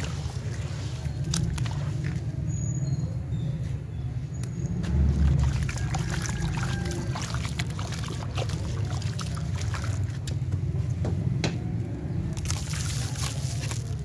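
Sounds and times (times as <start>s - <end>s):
small drips and crackles: 0.0s - 2.6s, 4.4s - 10.6s, 12.4s - 14.0s
low rumble: 0.0s - 13.1s
slurry sloshing in a tub: 0.0s - 14.0s.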